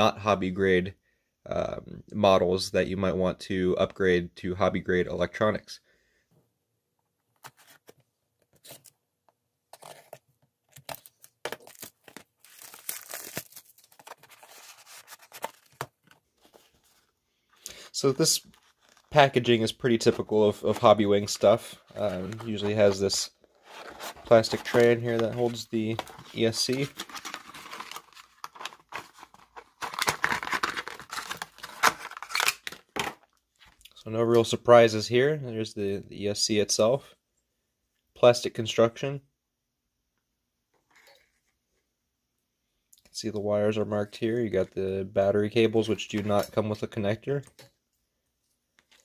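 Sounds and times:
plastic packaging rustling and crinkling: 9.7 - 33.8
shrink-wrap crackling and tearing: 9.8 - 15.8, 23.6 - 33.3.

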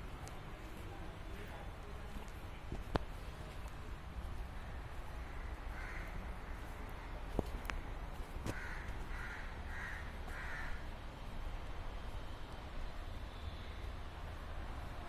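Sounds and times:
crow cawing: 5.3 - 6.3, 8.5 - 10.9.

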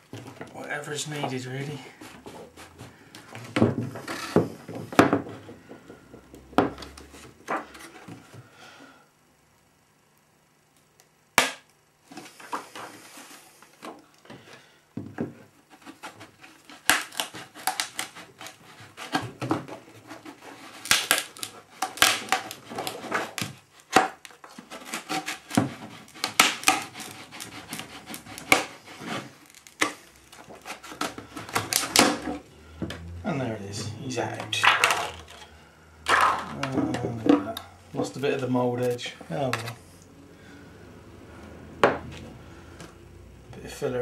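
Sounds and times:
moulding cracking and snapping: 15.8 - 32.3.

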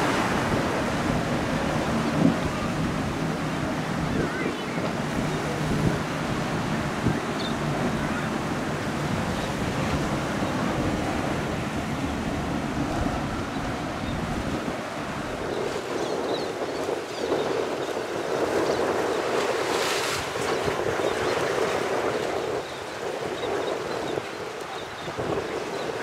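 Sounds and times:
outboard engines droning: 0.0 - 26.0
waves rushing: 0.0 - 26.0
wind buffeting microphone: 0.0 - 26.0.

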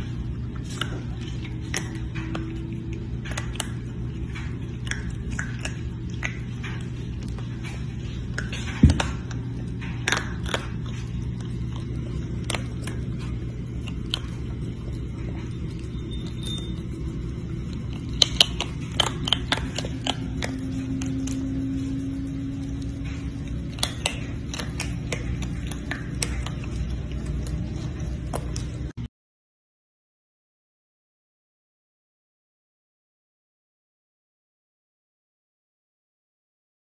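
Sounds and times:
food and claws clicking on bowl: 0.0 - 28.9
raccoon chewing crunches: 0.0 - 29.0
steady low hum: 0.0 - 29.0.

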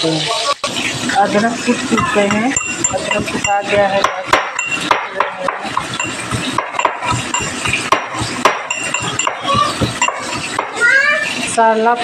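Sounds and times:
pestle knocking on steel bowl: 1.8 - 10.8.

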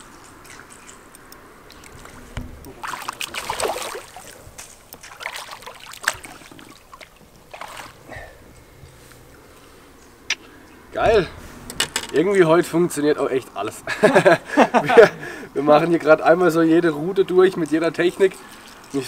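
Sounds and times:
fish thrashing and splashing: 0.0 - 8.2.

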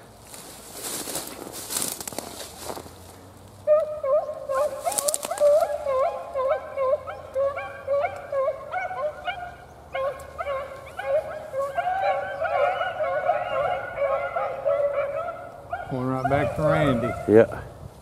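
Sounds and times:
beagles baying: 3.6 - 17.7.

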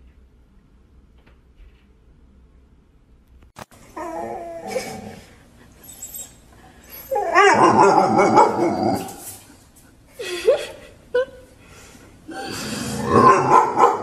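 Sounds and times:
dog crying: 3.9 - 9.2.

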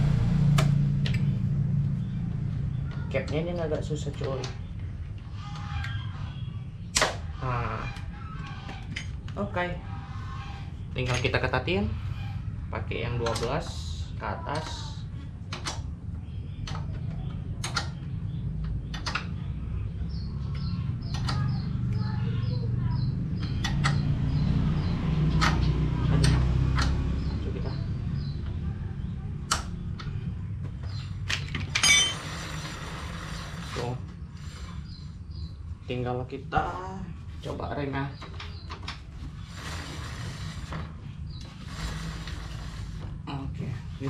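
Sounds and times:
low rumble: 0.0 - 8.8
bird chirping: 0.0 - 44.0
loud rasping noise: 32.1 - 35.4, 39.2 - 43.9.

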